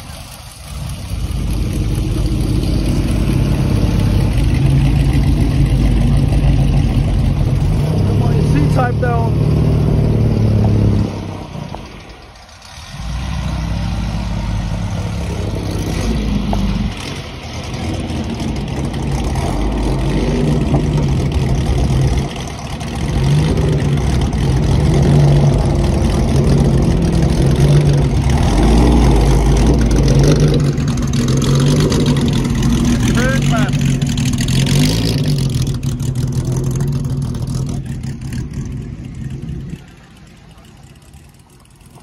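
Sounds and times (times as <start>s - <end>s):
racing car engines passing: 0.0s - 42.0s.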